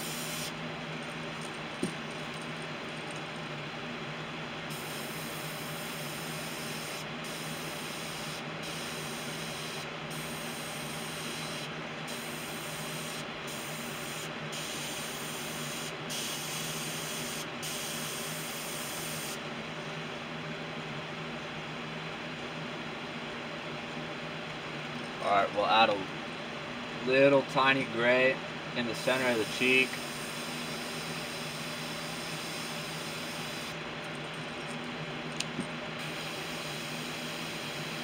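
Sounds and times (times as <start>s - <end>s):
airbrush spraying hiss: 0.0s - 0.6s, 29.0s - 33.8s.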